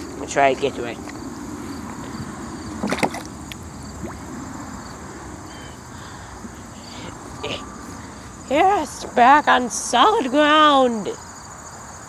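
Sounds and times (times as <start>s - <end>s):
footsteps splashing in shallow water: 2.7s - 4.4s.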